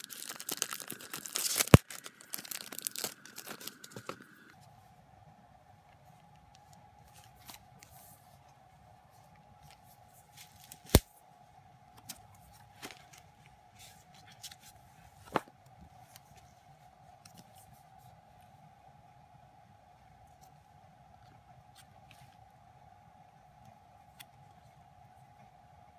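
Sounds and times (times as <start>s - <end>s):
paper and card handling: 0.0s - 4.5s, 6.6s - 8.3s, 9.6s - 11.1s, 12.0s - 16.6s
faint steady hum: 0.0s - 25.9s.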